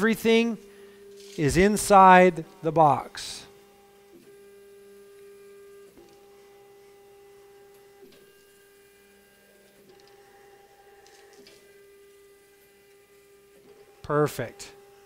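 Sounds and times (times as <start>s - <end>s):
drive motors whining faintly: 3.5s - 15.0s.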